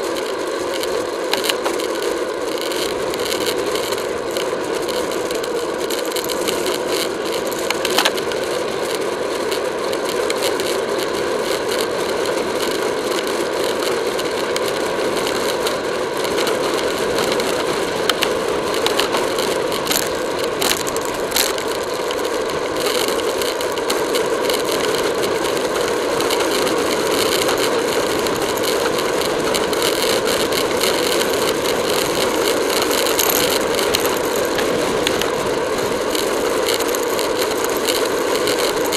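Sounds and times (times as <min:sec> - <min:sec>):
bicycle rattle: 0:00.0 - 0:38.9
tyres on asphalt: 0:00.0 - 0:38.9
sharp clicks: 0:02.6 - 0:08.5.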